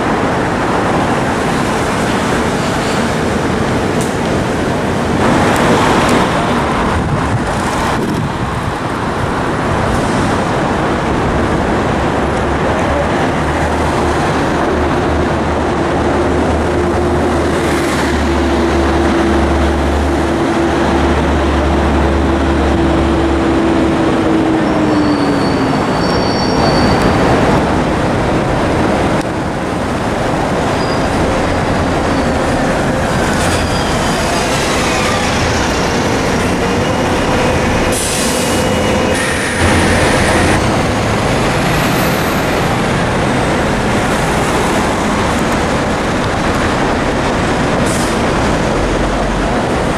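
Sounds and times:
city street traffic: 0.0 - 49.9
heavy vehicle engine hum: 0.0 - 49.9
high thin squeals: 24.9 - 27.2.

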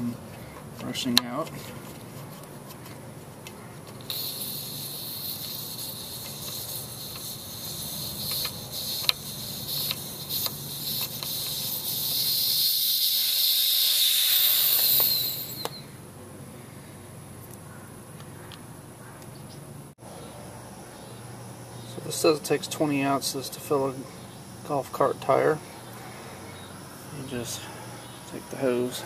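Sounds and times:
air hissing from tire valve: 4.1 - 16.0.

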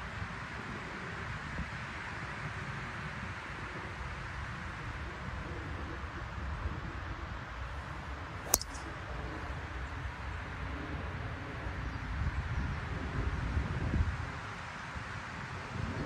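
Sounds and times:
golf club striking ball: 8.5 - 8.9.

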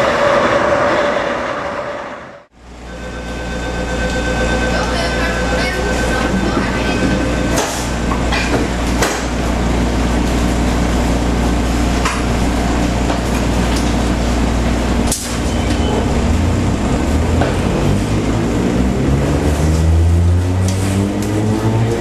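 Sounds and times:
traction motor whine rising: 0.0 - 8.8, 14.1 - 22.0
train wheels rumbling on rail: 4.6 - 22.0.

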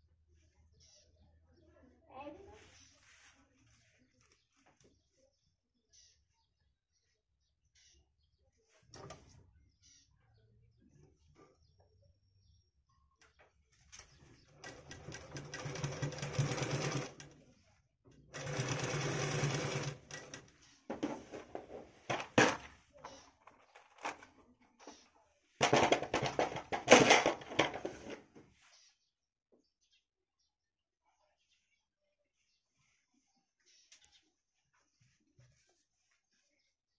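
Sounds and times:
sewing machine stitching: 13.9 - 17.4, 18.2 - 20.6, 25.6 - 28.2.

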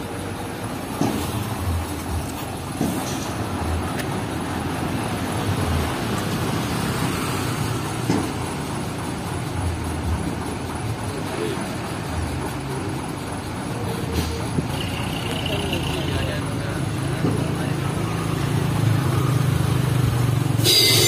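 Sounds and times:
diesel truck engine idling: 0.0 - 21.0
passing traffic: 0.0 - 21.0.

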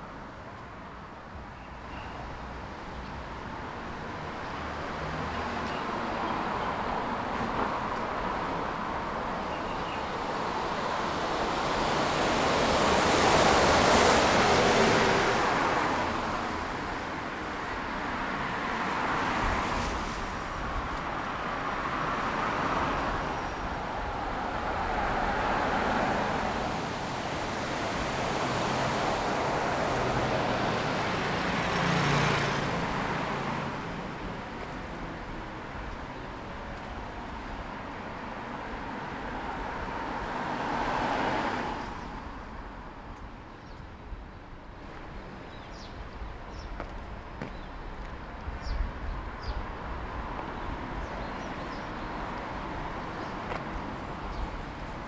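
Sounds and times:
cars passing on wet road: 10.0 - 43.2, 46.7 - 55.0.

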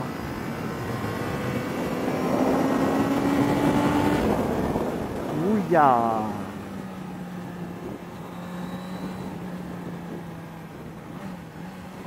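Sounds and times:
wind rushing over microphone: 0.0 - 6.6
motorcycle engine cruising: 0.0 - 12.0.

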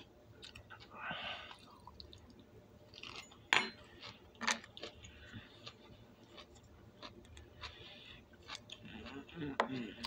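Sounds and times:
broccoli crunching while chewed: 4.0 - 7.8, 8.4 - 10.0.

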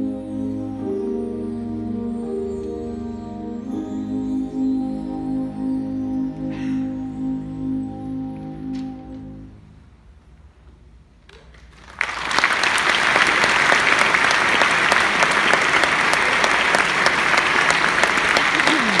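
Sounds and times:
audience applause: 11.4 - 19.0.

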